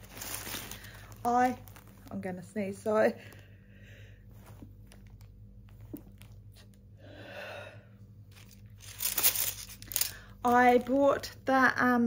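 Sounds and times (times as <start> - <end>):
quiet breathing: 0.6 - 1.2, 3.1 - 4.7, 6.9 - 8.2.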